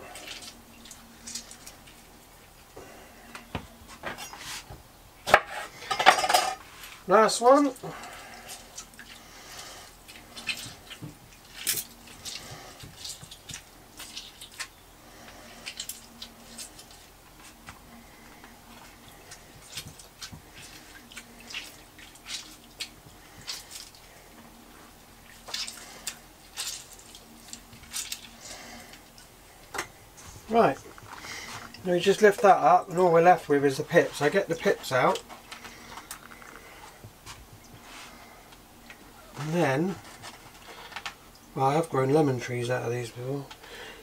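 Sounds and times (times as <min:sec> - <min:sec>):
juice dripping into liquid: 0:07.8 - 0:30.0.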